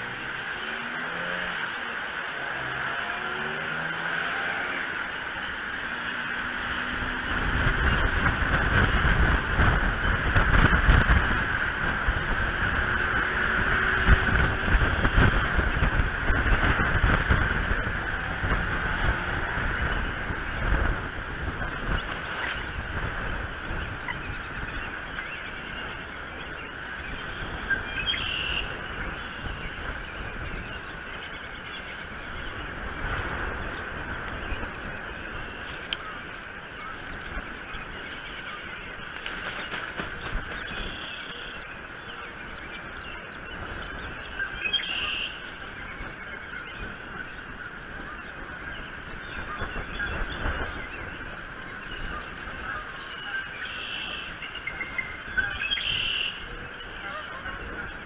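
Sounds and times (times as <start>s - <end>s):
rain hiss: 0.0s - 58.0s
wind buffeting microphone: 4.7s - 58.0s.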